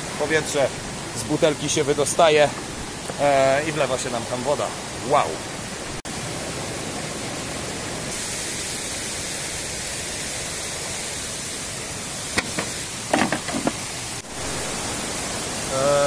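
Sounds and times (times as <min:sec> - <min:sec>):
stream rushing over rocks: 0:00.0 - 0:16.0
short knocks: 0:12.4 - 0:13.8.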